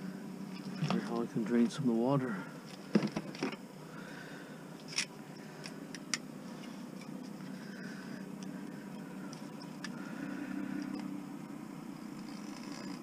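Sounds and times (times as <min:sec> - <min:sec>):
vehicle engine idling: 0:03.8 - 0:13.0.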